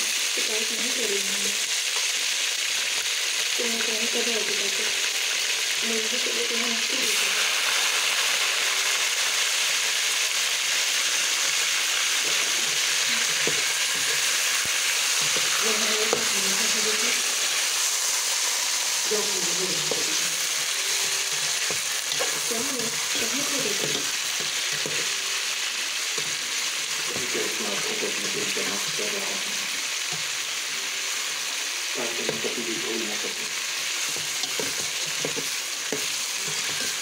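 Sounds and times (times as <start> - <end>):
chicken sizzling in hot oil: 0.0 - 37.0
metal spoon scraping a pot: 20.0 - 25.1, 34.0 - 37.0.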